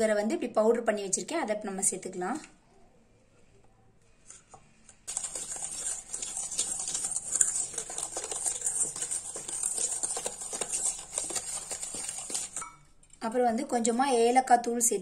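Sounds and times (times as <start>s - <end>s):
whisk beating in a metal bowl: 5.1s - 12.8s.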